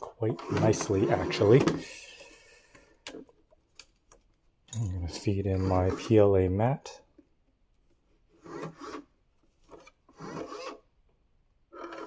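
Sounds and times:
plastic spool rasping: 0.2s - 3.2s, 5.4s - 6.3s, 9.7s - 10.8s, 11.7s - 12.0s.

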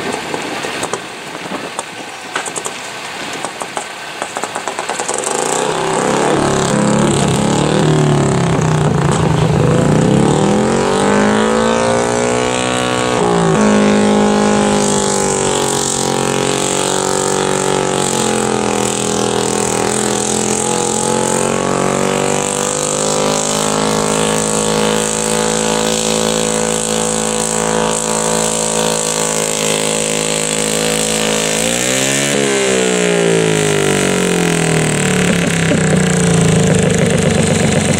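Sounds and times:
tractor engine running hard: 4.6s - 37.9s.

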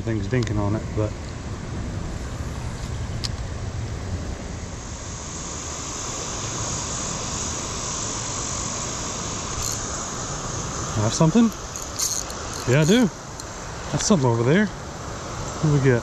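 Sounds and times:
insects buzzing: 4.7s - 16.0s.

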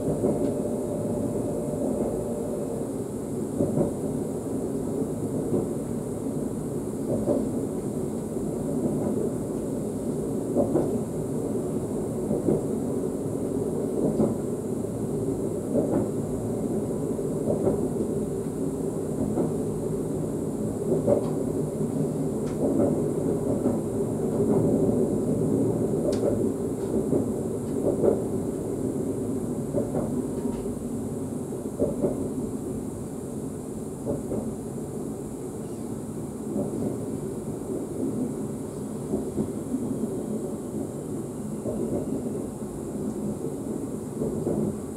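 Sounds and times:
train running gear rumble: 0.0s - 44.9s.

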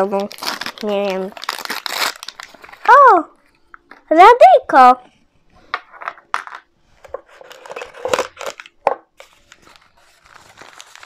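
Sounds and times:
foil packaging crinkling: 0.0s - 3.0s, 7.3s - 11.0s.

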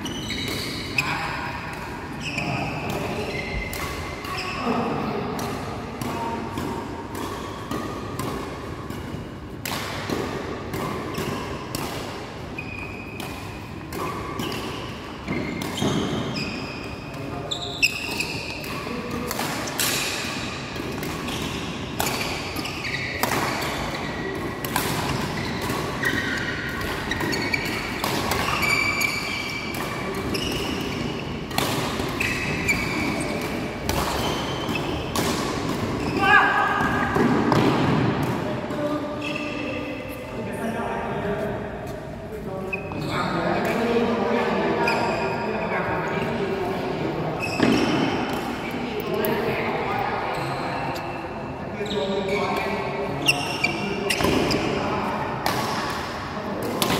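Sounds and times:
shoes squeaking on court: 0.0s - 1.3s, 2.2s - 4.8s, 12.4s - 37.8s, 38.7s - 40.3s, 42.6s - 55.9s
racket hitting shuttlecock: 0.1s - 17.2s, 17.8s - 39.6s, 46.2s - 49.7s, 52.3s - 56.9s.

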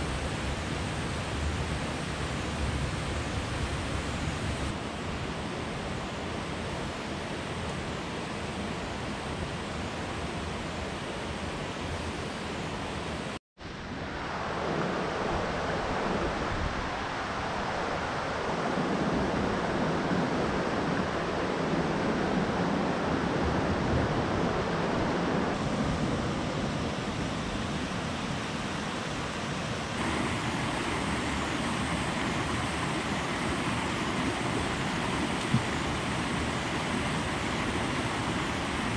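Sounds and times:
river rushing over rocks: 13.8s - 38.9s.

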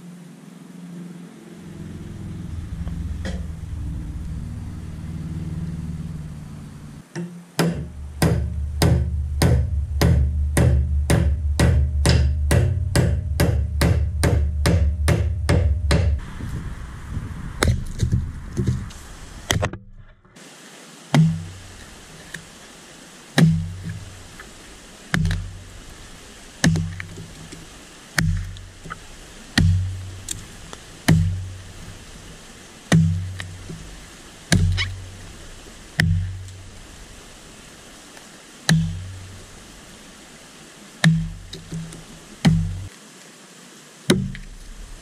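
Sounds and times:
steady low tone: 0.0s - 7.0s, 7.7s - 20.3s
axe chopping into tree: 7.2s - 16.2s, 21.1s - 21.5s, 23.4s - 24.0s, 25.1s - 25.6s, 26.6s - 27.6s, 28.2s - 29.0s, 29.6s - 30.5s, 31.1s - 31.5s, 32.9s - 33.8s, 34.5s - 35.0s, 36.0s - 36.5s, 38.7s - 39.1s, 41.0s - 42.9s, 44.1s - 44.5s.

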